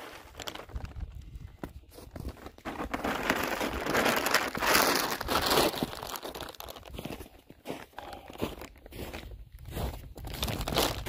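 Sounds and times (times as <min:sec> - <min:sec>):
plastic bag crinkling: 0:00.0 - 0:01.4, 0:02.1 - 0:07.3, 0:10.2 - 0:11.0.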